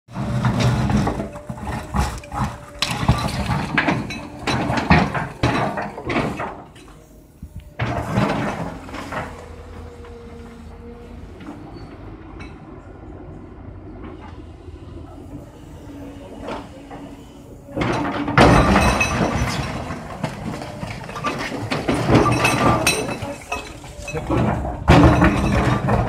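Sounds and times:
rubble crashing and clattering: 0.1 - 6.7, 17.8 - 26.0
excavator engine running: 0.1 - 26.0.

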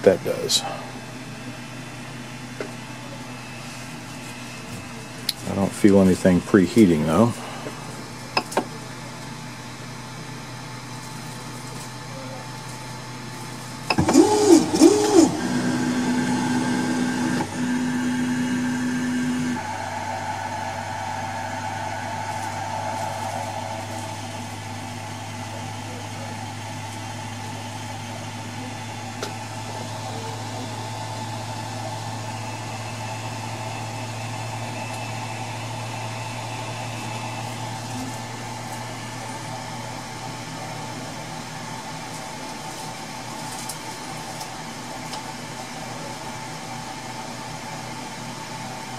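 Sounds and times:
printer fan hum: 0.0 - 10.1, 12.6 - 47.1
stepper motors whining: 13.9 - 39.2.

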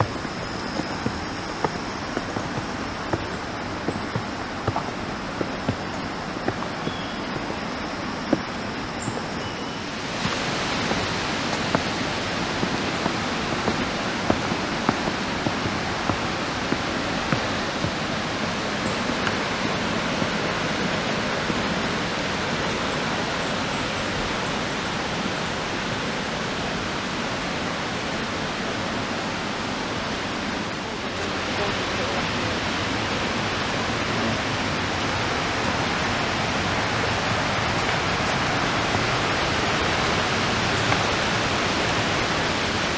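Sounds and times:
footsteps on wooden steps: 0.0 - 21.8, 33.8 - 42.7
river rapids rushing: 0.0 - 42.9.

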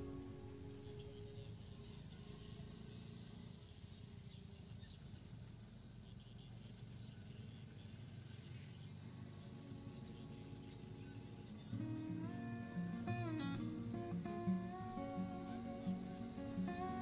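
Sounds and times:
guitar music: 0.0 - 2.8, 9.1 - 17.0.

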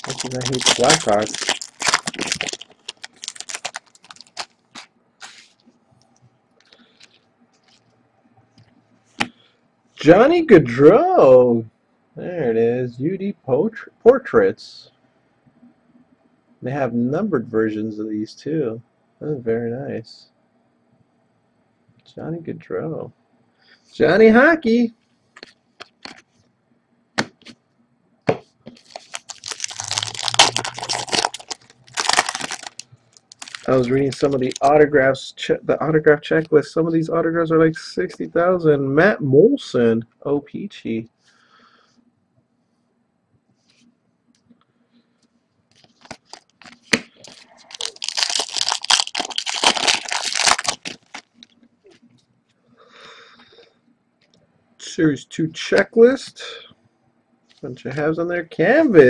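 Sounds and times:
wrapper crinkling and tearing: 0.0 - 5.6, 28.7 - 34.8, 45.7 - 51.5.

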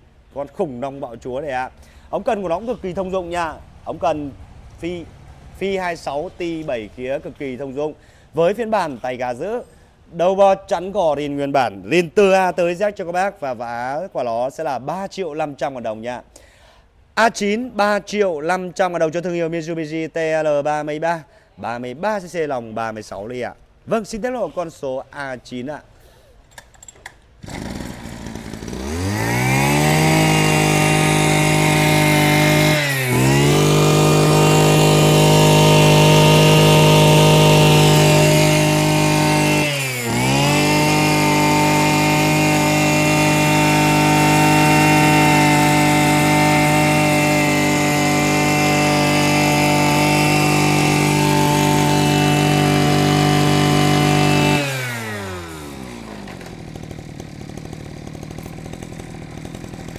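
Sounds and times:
brush cutter engine revving: 27.4 - 59.9.

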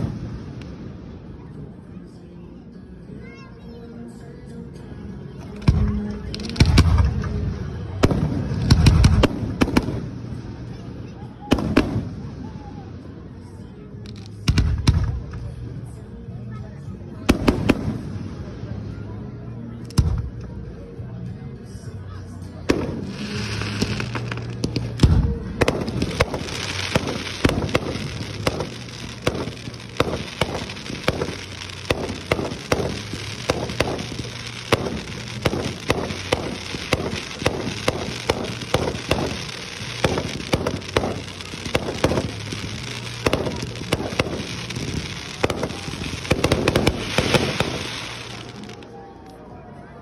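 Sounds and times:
firework bursts and bangs: 0.0 - 1.4, 5.6 - 13.1, 14.1 - 15.6, 17.3 - 19.0, 22.7 - 48.9
fireworks crackling: 0.0 - 1.9, 5.4 - 15.8, 17.3 - 19.0, 22.6 - 49.4.

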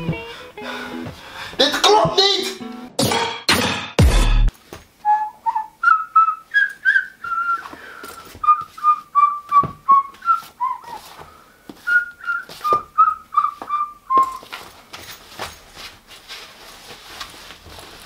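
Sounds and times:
person whistling a tune: 5.0 - 11.2, 11.8 - 14.5.

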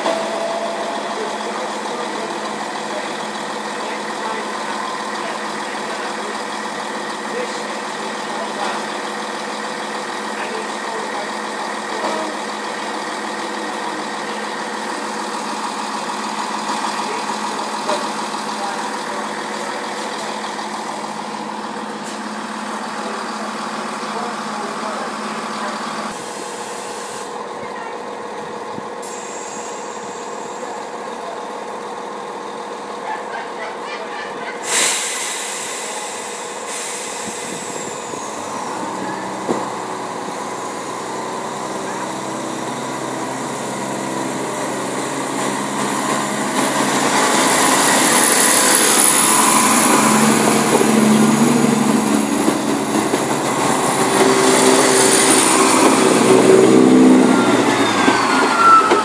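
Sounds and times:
diesel train engine idling: 0.0 - 59.0
sharp hiss of released air: 34.6 - 37.8.

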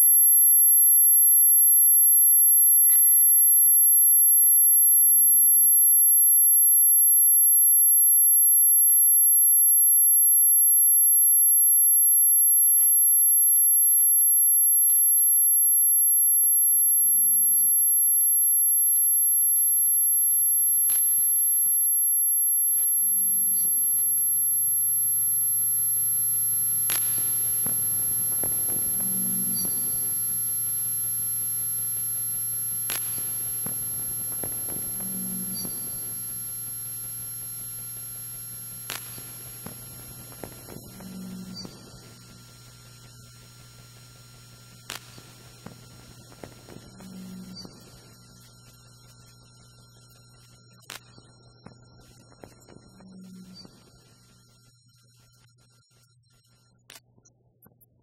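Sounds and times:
piercing high steady tone: 0.0 - 55.0
low steady hum: 23.2 - 48.8
sharp clicks: 26.8 - 30.3, 32.9 - 36.0
soft low pulses: 26.8 - 31.8.

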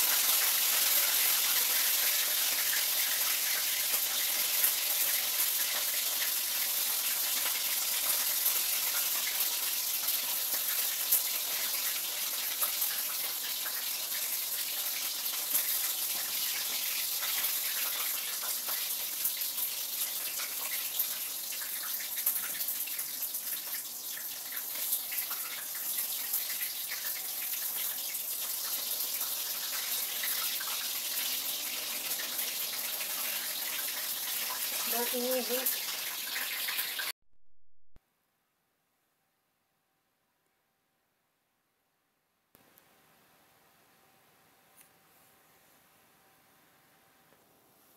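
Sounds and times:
oil sizzling in a frying pan: 0.0 - 37.2.

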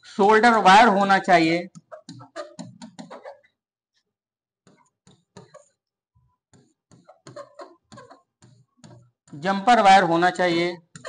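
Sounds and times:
marker scratching on board: 1.7 - 3.5, 4.6 - 9.8.

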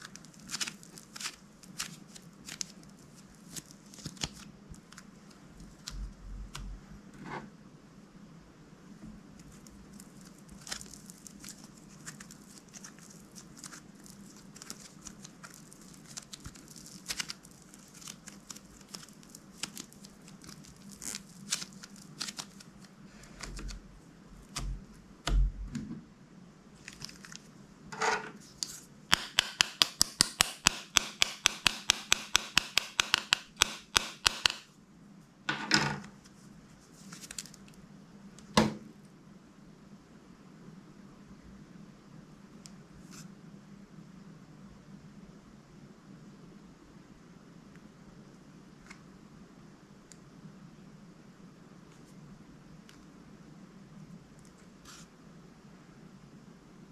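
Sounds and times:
slime clicks and crackles: 9.6 - 22.7.

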